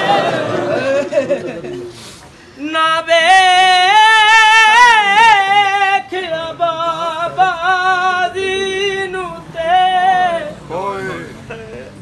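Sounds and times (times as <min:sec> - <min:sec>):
man singing unaccompanied: 0:02.6 - 0:12.0.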